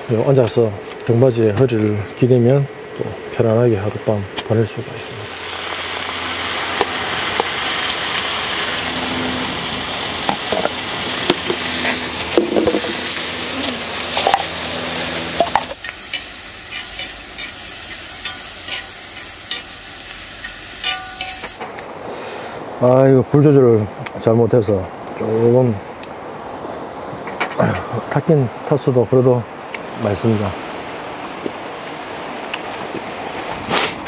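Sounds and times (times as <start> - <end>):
person speaking: 3.1 - 5.4, 13.4 - 14.0
pork sizzling in a pan: 4.7 - 21.7
utensil clicking on pan: 20.4 - 21.6.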